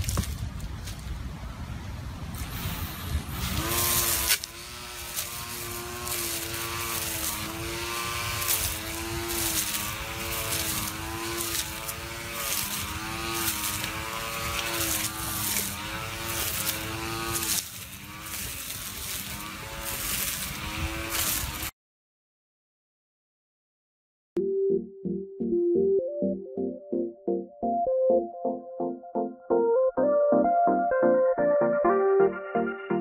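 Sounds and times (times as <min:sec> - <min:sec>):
cutting head striking plants: 0:00.0 - 0:01.1, 0:03.3 - 0:21.7
grass trimmer motor whining: 0:02.4 - 0:21.7.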